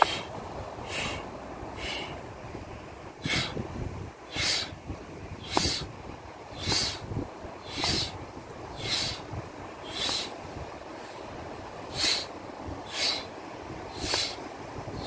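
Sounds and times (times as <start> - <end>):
man's sharp hissing breaths: 0.0 - 2.2, 3.2 - 3.6, 4.3 - 4.8, 5.4 - 5.9, 6.5 - 10.4, 11.9 - 14.4
wind: 0.0 - 15.0.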